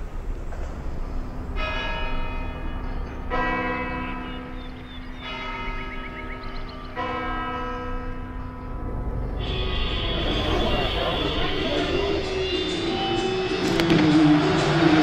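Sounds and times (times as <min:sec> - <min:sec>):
church bell tolling: 0:01.2 - 0:15.0.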